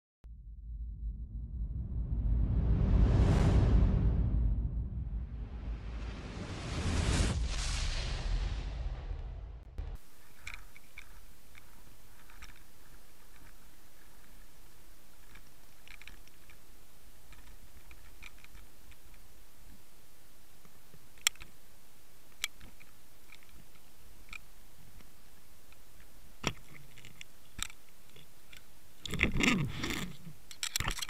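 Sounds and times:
faint clicks and ticks: 9.8 - 31.0
sharp clicks: 9.8 - 31.0.

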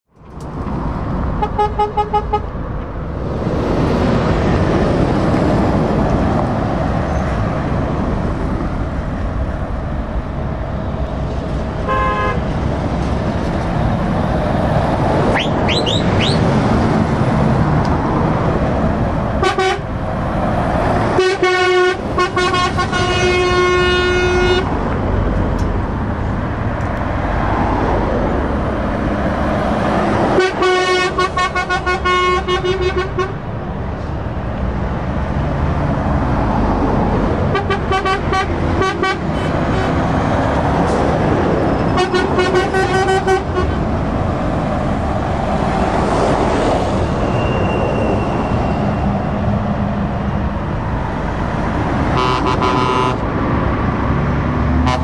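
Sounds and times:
traffic passing: 0.1 - 55.0
truck horns: 1.3 - 2.6, 11.7 - 12.6, 15.2 - 16.9, 19.2 - 20.3, 20.9 - 24.8, 30.0 - 33.5, 37.2 - 44.1, 52.0 - 53.4, 54.7 - 55.0.

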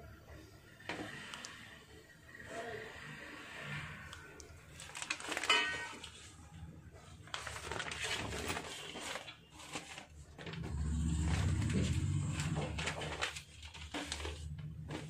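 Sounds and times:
newspaper rustling and crackling: 4.7 - 6.4, 7.0 - 15.0.

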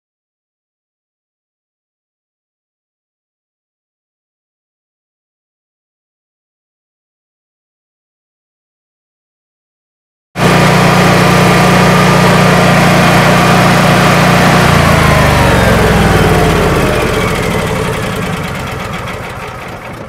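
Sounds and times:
generator engine winding down: 10.4 - 20.0.

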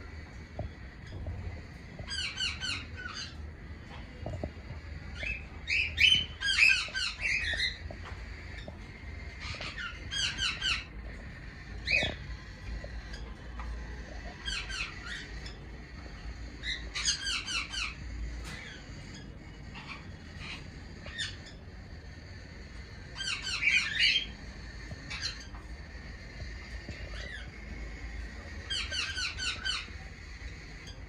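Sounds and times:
cockatiels chirping: 0.1 - 31.0.

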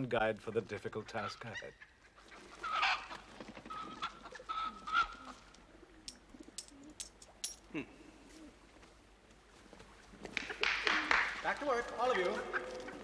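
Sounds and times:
chickens calling: 0.9 - 7.0, 9.7 - 13.0.

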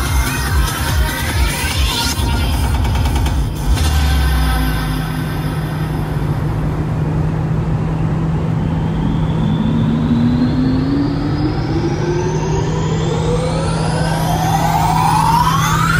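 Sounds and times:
car engine droning: 0.0 - 15.9
whine rising in pitch: 0.0 - 15.9
road and wind noise: 3.6 - 15.9.

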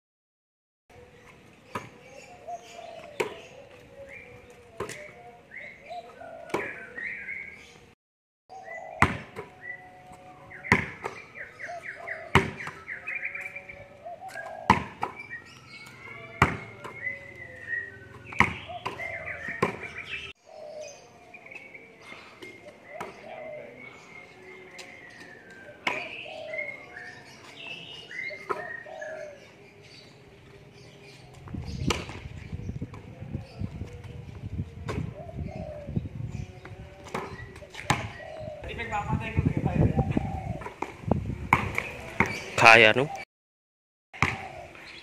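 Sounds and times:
birds chirping: 0.9 - 43.3, 44.1 - 45.0
basketball slapping on concrete: 9.0 - 9.5, 10.7 - 11.2, 12.3 - 12.8, 14.3 - 15.2, 16.3 - 17.1, 18.2 - 19.9, 31.5 - 32.3, 37.0 - 38.2, 40.6 - 42.5, 44.2 - 44.5.

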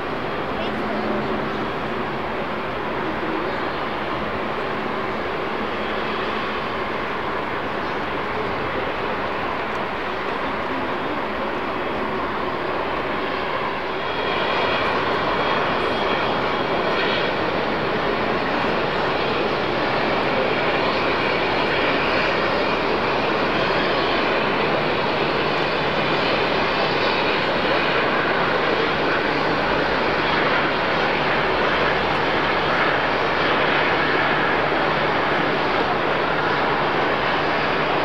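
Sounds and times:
jet engines rushing: 0.0 - 38.0.

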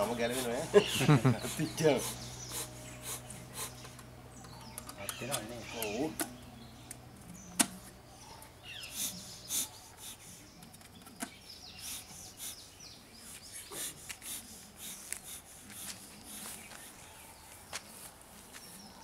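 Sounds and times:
smoker bellows puffs: 0.0 - 4.1
small birds chirping: 0.0 - 19.0.

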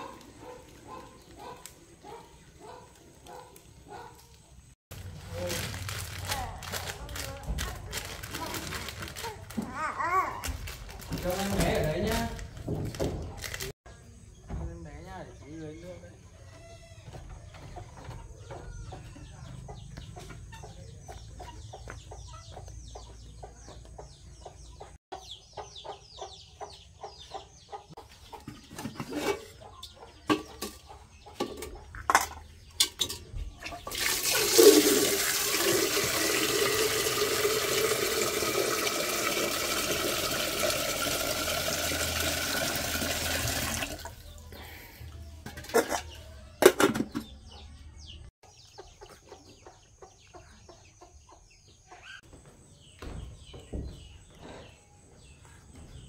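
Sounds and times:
chickens clucking: 0.0 - 4.6, 17.1 - 33.9, 44.1 - 56.0
water gushing: 33.9 - 44.2.

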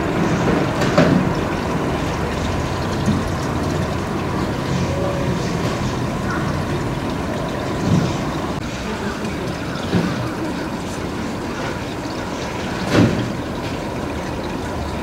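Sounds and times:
faint distant voices: 4.6 - 12.9.

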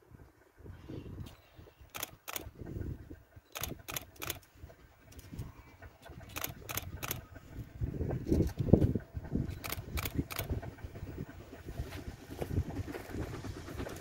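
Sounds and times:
wind gusting on microphone: 0.1 - 14.0
sharp clicks: 1.9 - 2.5, 3.5 - 4.5, 6.2 - 7.2, 9.5 - 10.6.

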